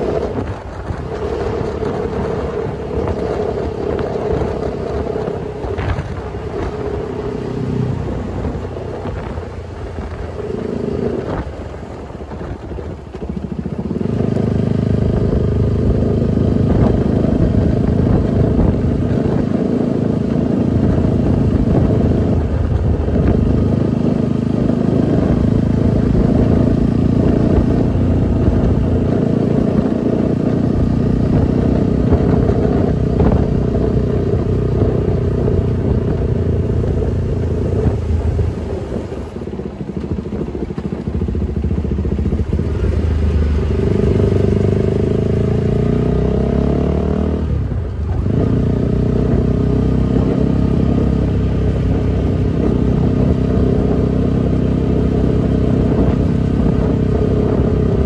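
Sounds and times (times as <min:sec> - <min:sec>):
motorcycle engine running: 0:00.0 - 0:58.0
wind rushing over microphone: 0:00.0 - 0:58.0.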